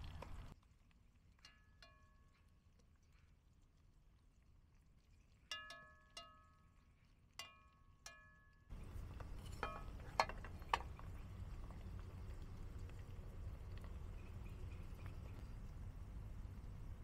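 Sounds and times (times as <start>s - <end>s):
light ringing metal clinks: 5.5s - 6.8s, 7.4s - 11.0s
low background rumble: 8.7s - 17.0s.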